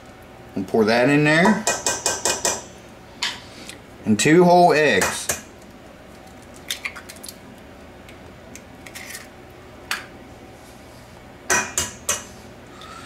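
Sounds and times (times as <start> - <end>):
eggs tapped on metal bowl: 1.4 - 2.6.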